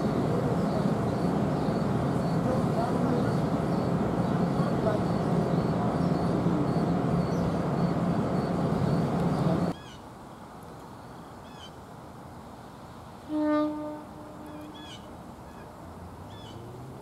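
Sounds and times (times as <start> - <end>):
train rumble and hum: 0.0 - 9.8, 13.1 - 17.0
bird chirps: 3.1 - 10.0.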